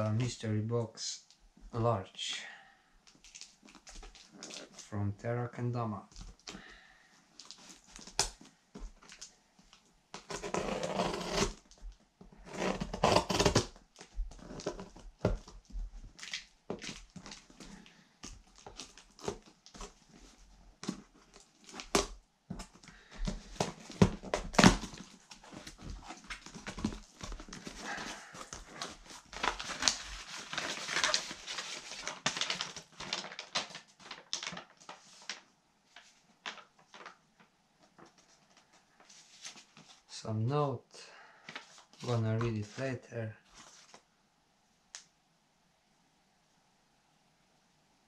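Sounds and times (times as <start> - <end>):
packing tape peeled and torn: 10.1 - 15.0, 18.5 - 19.9, 23.6 - 35.4
paper rustling: 12.6 - 40.1, 41.4 - 44.0.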